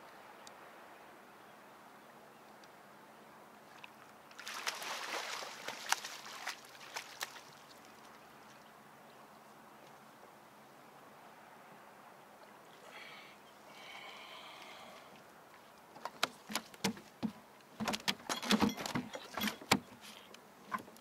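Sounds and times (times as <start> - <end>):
fish thrashing and splashing: 4.4 - 7.7
sharp water slaps: 4.4 - 7.8.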